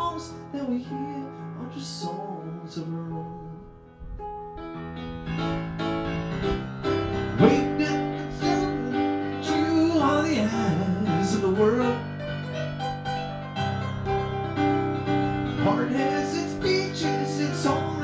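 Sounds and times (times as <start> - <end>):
piano-toned keyboard chords: 0.0 - 18.0.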